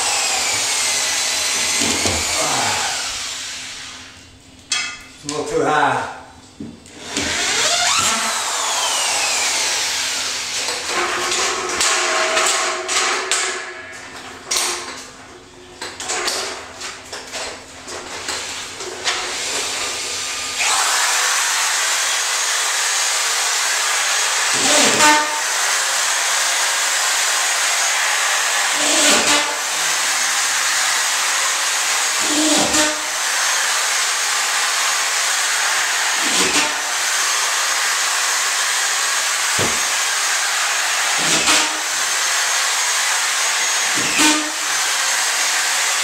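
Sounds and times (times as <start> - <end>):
power tool motor whining: 0.0 - 4.1, 6.9 - 10.9, 19.1 - 46.0.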